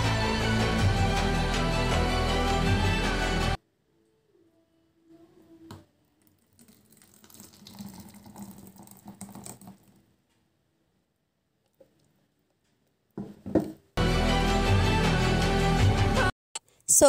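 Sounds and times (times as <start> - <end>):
background music: 0.0 - 3.6, 14.0 - 16.3
smoothie pouring into plastic bowl: 6.2 - 10.0
knock: 13.2 - 13.8.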